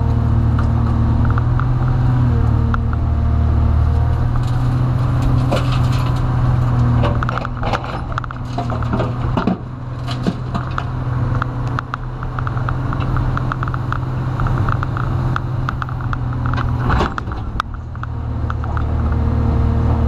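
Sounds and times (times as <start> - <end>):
excavator diesel engine: 0.0 - 20.0
bucket clanks and knocks: 7.0 - 10.8.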